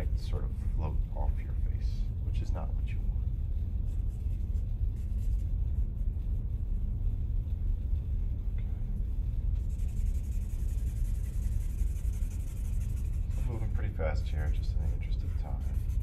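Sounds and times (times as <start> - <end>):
steady low rumble: 0.0 - 16.0
fingers rubbing charcoal on paper: 3.7 - 8.0, 9.5 - 16.0.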